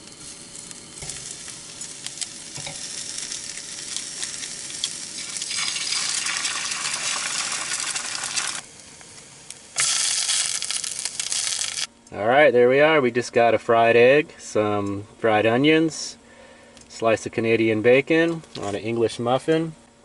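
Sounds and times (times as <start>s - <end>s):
food sizzling in a skillet: 0.0s - 11.9s.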